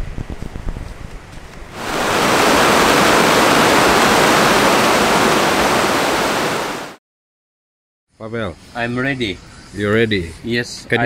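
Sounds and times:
outdoor background noise: 0.0s - 7.0s
whitewater rushing over rocks: 1.8s - 7.0s.

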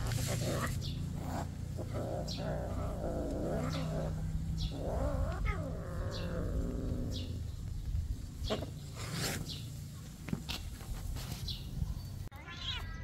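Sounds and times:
cat yowling: 2.2s - 7.2s, 12.3s - 13.0s.

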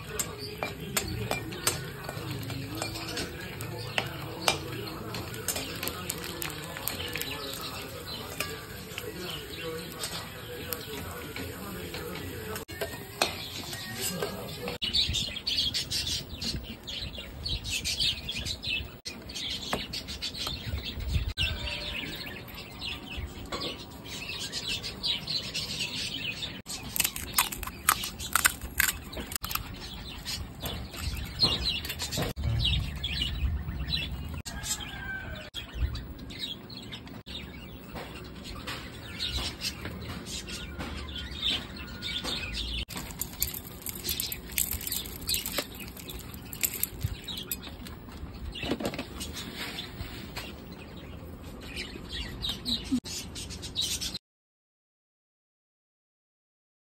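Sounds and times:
small birds chirping: 0.0s - 54.2s
sharp clicks and clatters: 42.9s - 48.0s.

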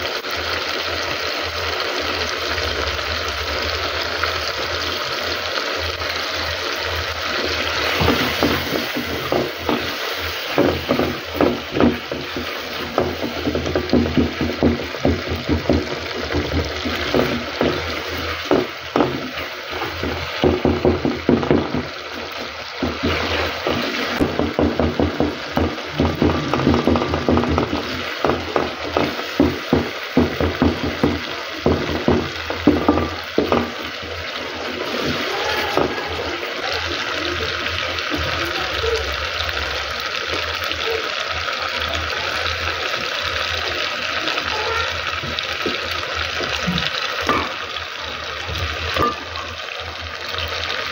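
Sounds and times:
sauce sizzling: 0.0s - 50.9s
wooden spoon scraping a pot: 7.3s - 36.3s.

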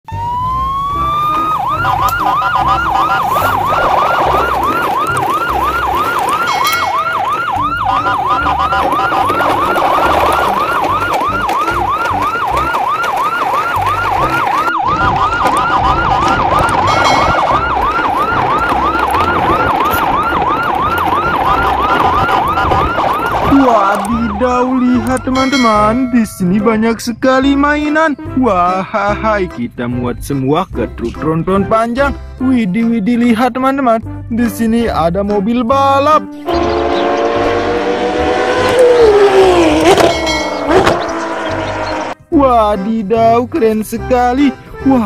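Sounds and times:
yelp siren wailing: 0.1s - 26.4s, 36.4s - 42.3s.

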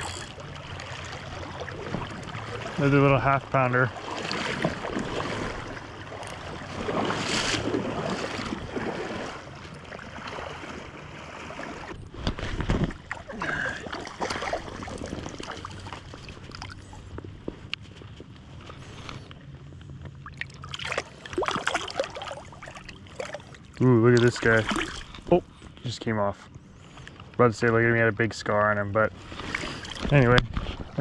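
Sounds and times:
river water splashing and rushing: 0.0s - 17.0s, 20.2s - 25.2s.

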